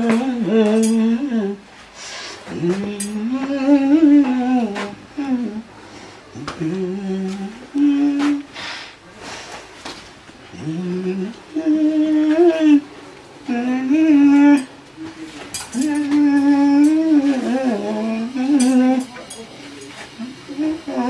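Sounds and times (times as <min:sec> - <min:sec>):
man humming: 0:00.0 - 0:01.7, 0:02.4 - 0:05.7, 0:06.3 - 0:08.6, 0:10.5 - 0:21.0.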